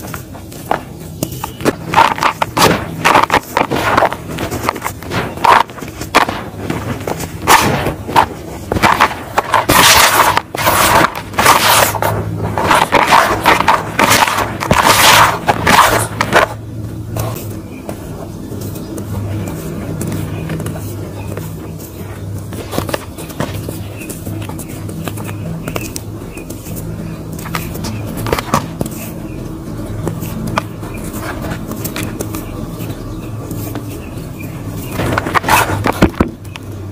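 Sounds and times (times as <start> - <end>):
hands crunching dry pebbly dirt: 0.0 - 36.8
low hum: 0.0 - 36.9.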